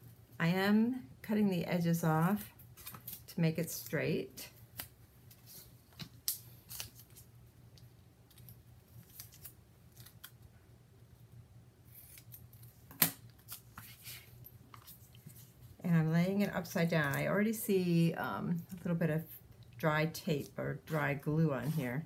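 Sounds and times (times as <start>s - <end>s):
tape rustling: 4.7s - 10.4s.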